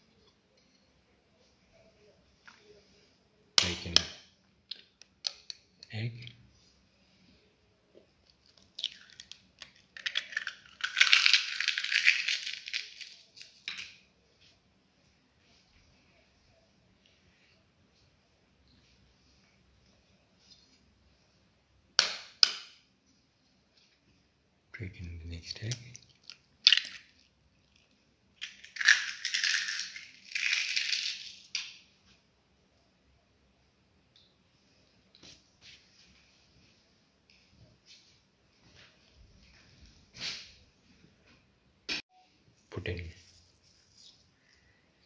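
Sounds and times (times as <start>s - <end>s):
egg shell crushing rustles: 8.2s - 14.0s, 26.0s - 31.8s
eggshell cracking: 8.2s - 14.0s, 25.7s - 31.8s.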